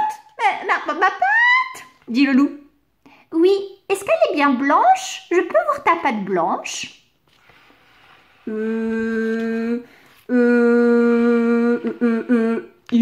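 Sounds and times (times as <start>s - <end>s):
woman humming: 8.4s - 13.0s.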